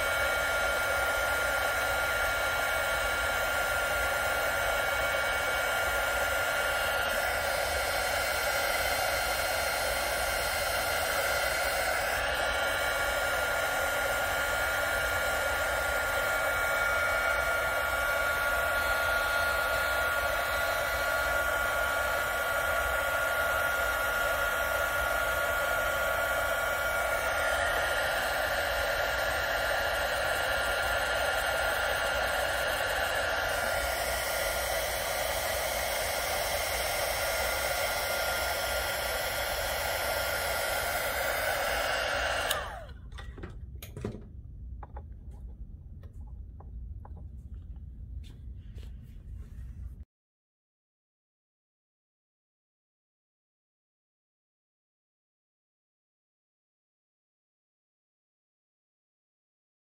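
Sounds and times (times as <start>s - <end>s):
heat gun blowing air: 0.0s - 43.3s.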